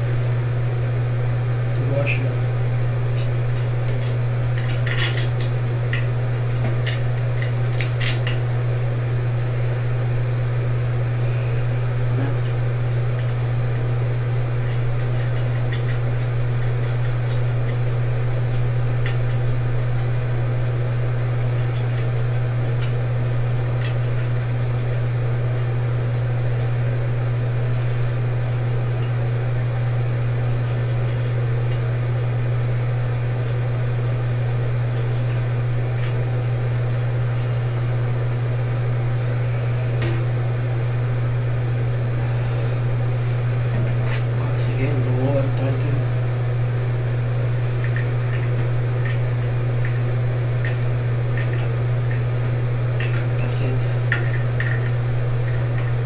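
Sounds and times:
steady low hum: 0:00.0 - 0:56.0.

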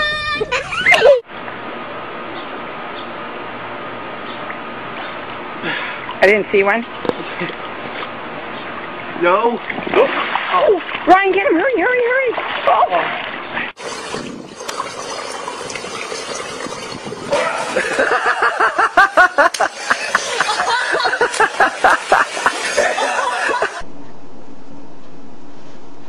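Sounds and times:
pool water sloshing: 0:04.4 - 0:23.8
person laughing hard: 0:17.4 - 0:23.8.

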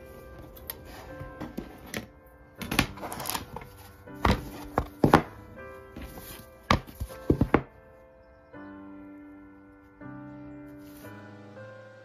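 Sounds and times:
soft background music: 0:00.0 - 0:12.0
cardboard boards knocking: 0:02.7 - 0:05.4, 0:06.0 - 0:07.7.

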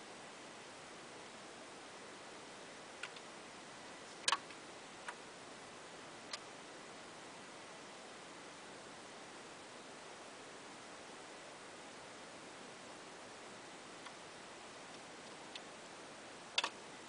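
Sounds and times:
steady hiss: 0:00.0 - 0:17.0
turntable mechanism clicking: 0:16.6 - 0:16.8.

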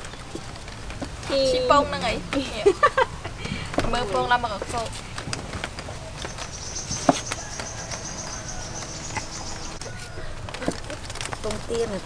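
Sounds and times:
eggs clicking against trays: 0:00.0 - 0:12.0
insect buzzing: 0:06.6 - 0:09.9.

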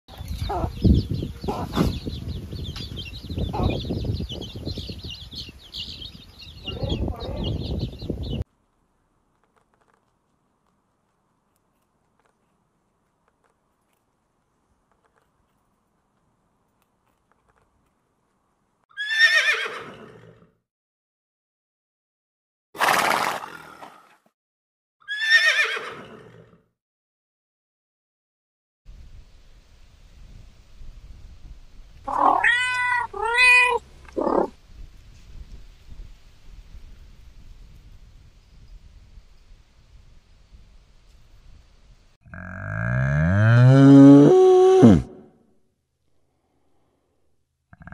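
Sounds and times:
chicks peeping: 0:00.3 - 0:08.4
horse neighing: 0:19.0 - 0:20.4, 0:25.1 - 0:26.4, 0:32.1 - 0:33.6, 0:34.2 - 0:34.5, 0:43.9 - 0:45.3
hen clucking: 0:32.1 - 0:34.6.

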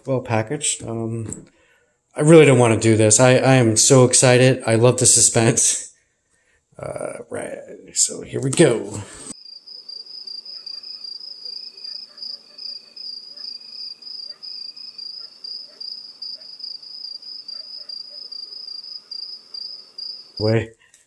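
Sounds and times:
low cricket chirp: 0:09.3 - 0:20.6
crickets trilling: 0:09.4 - 0:20.6.

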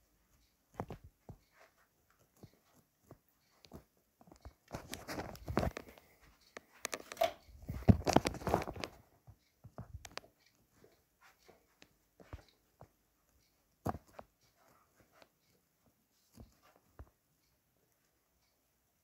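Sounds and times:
faint clicks and taps: 0:00.0 - 0:19.0
camera handling rustling: 0:04.7 - 0:06.0, 0:06.7 - 0:09.0.

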